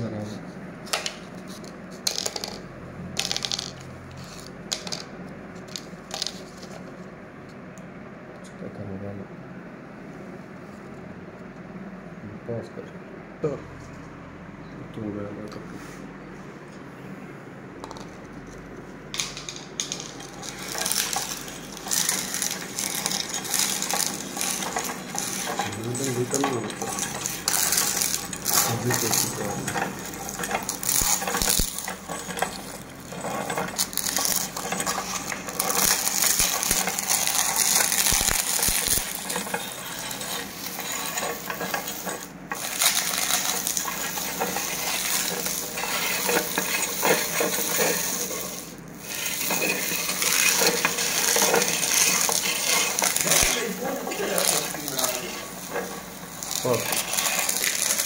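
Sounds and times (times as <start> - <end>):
meat grinder crunching wafer cones: 19.2 - 58.0
metallic clinking: 19.2 - 58.0.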